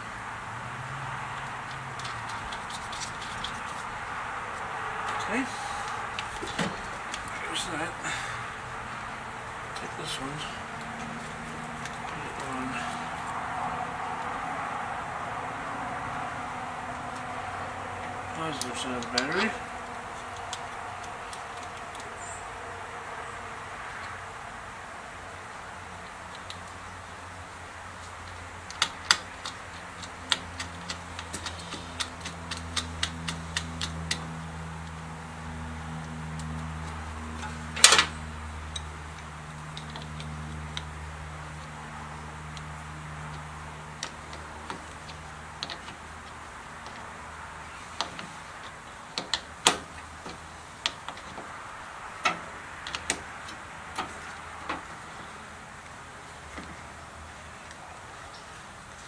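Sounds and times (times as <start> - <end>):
metallic clicks and knocks: 28.2 - 35.0, 36.0 - 41.8, 42.5 - 47.1, 48.0 - 51.6, 52.2 - 55.3.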